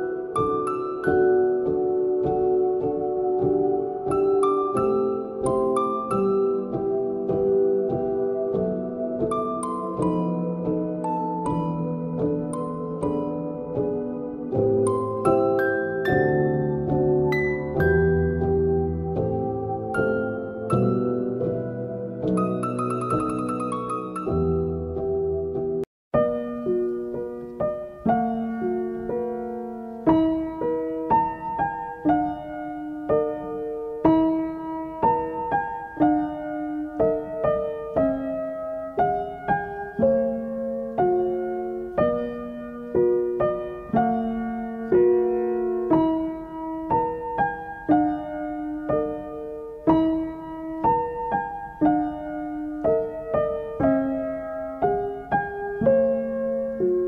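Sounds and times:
gentle piano piece: 0.0 - 57.0.

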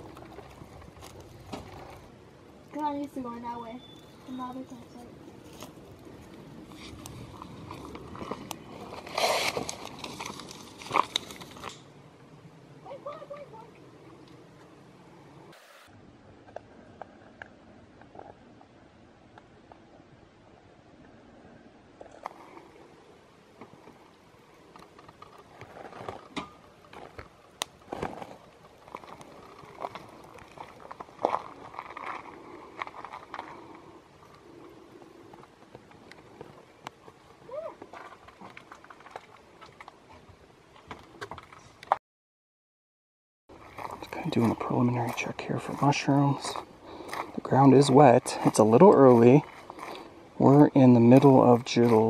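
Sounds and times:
crunching rustle: 0.0 - 11.9, 23.6 - 42.0, 43.5 - 52.0
campfire crackling and popping: 0.0 - 12.4, 22.0 - 42.0, 43.5 - 52.0.

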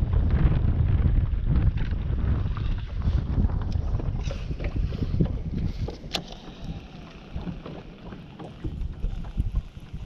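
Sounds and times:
wind rumbling on microphone: 0.0 - 10.0.

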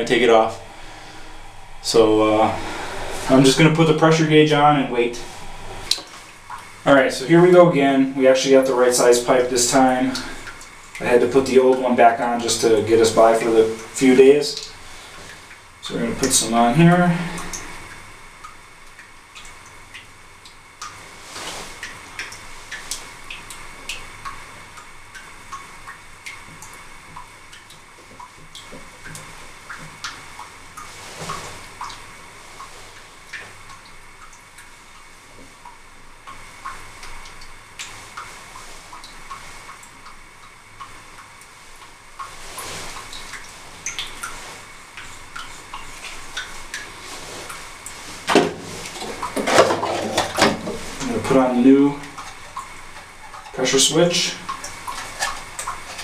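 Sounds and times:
faint high whine: 0.0 - 14.6.

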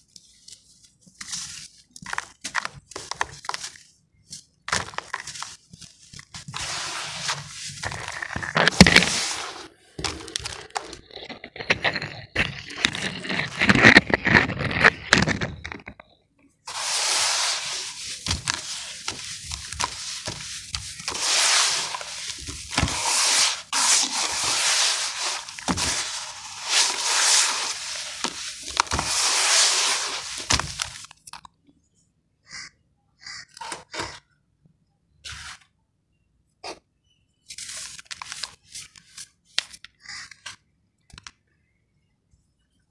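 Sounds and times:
hands crunching sand: 16.7 - 31.0.

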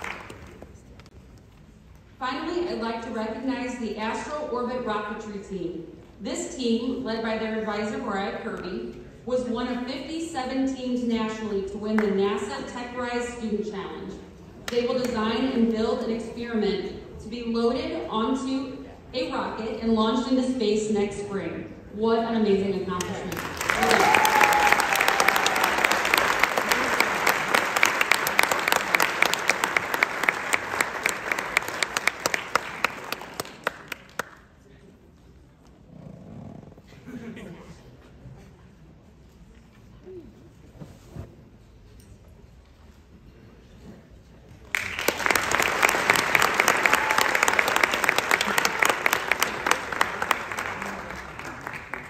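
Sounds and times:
audience applauding: 0.0 - 0.8, 23.3 - 34.4, 44.7 - 52.0.

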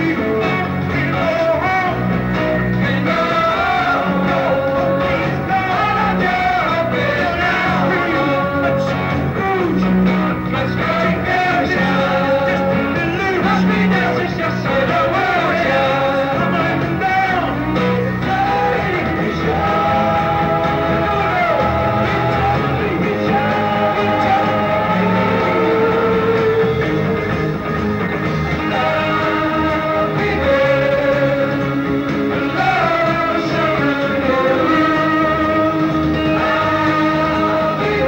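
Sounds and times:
rock band playing with vocals: 0.0 - 38.0.

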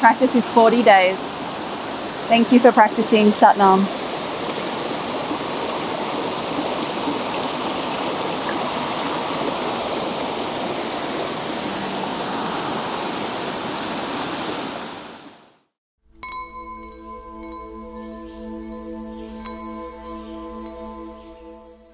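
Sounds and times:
stream rushing over rocks: 0.1 - 15.6.

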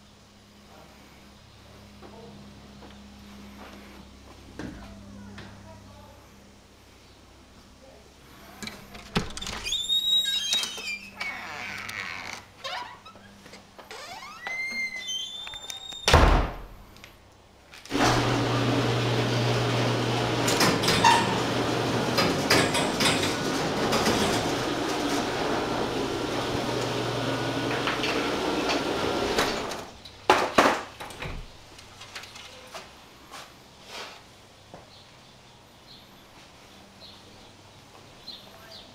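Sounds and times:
loud thump: 16.1 - 16.7
garage door opener motor rattling: 17.9 - 29.9.

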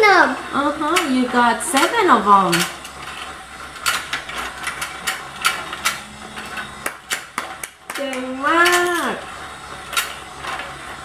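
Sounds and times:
faint motor hum: 0.0 - 11.0
plastic toy clicks and knocks: 0.9 - 9.2.

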